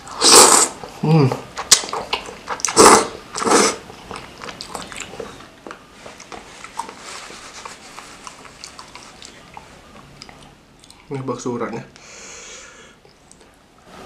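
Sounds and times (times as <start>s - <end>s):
person slurping soup: 0.0s - 0.8s, 2.6s - 3.8s
wet chewing: 1.5s - 11.1s.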